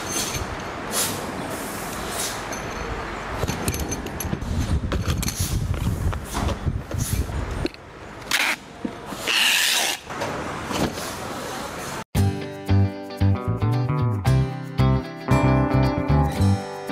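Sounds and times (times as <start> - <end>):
packing tape screeching: 8.3 - 10.1.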